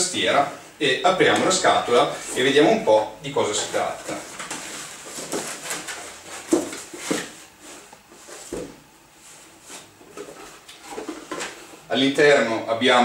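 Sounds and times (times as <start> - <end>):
packing material rustling: 3.7 - 8.6.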